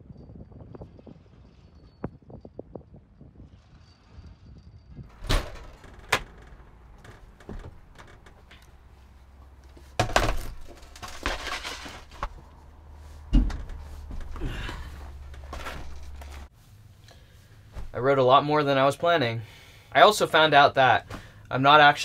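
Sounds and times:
knocks and thuds climbing: 5.1s - 16.5s, 17.7s - 18.0s
clothing rustle: 5.1s - 18.3s.

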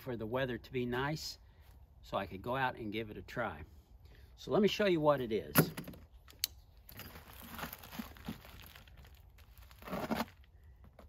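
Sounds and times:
plastic wrapping tearing: 7.1s - 10.5s.

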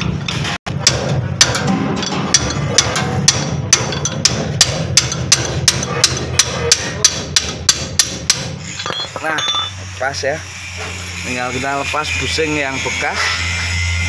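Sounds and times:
hammer striking steel bar: 0.0s - 9.7s.

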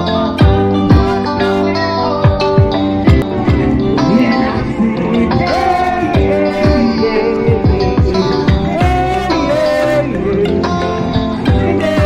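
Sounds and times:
held chords: 0.0s - 12.0s
deep kick drum beats: 0.4s - 1.6s, 2.2s - 9.3s, 11.5s - 12.0s.

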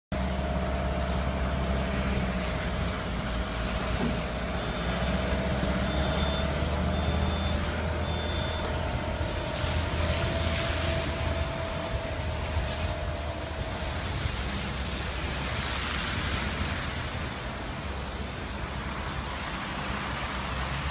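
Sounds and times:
loader engine running: 0.1s - 19.2s
reversing alarm beeping: 4.5s - 10.0s.

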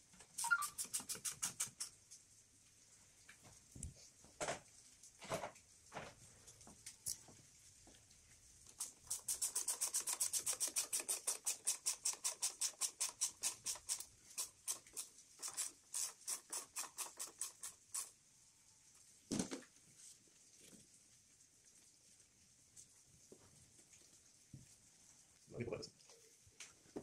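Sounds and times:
ratchet clicking: 8.8s - 18.1s.

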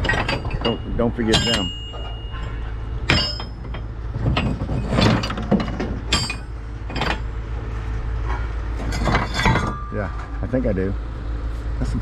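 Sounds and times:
scrap metal clinking: 0.0s - 7.3s, 8.2s - 10.4s.

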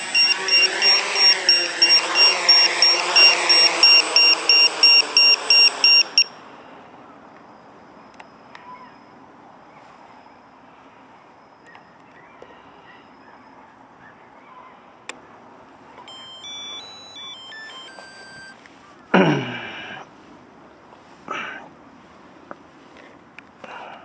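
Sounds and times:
short electronic beeps: 0.0s - 6.4s, 16.1s - 18.6s.

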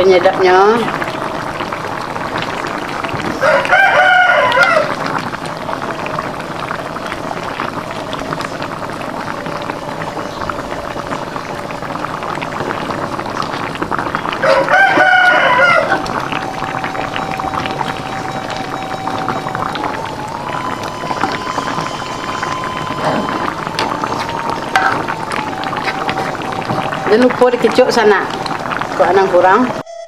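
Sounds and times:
sauce bubbling in a pot: 0.0s - 29.8s
rooster crowing: 3.3s - 5.2s, 14.4s - 27.1s.

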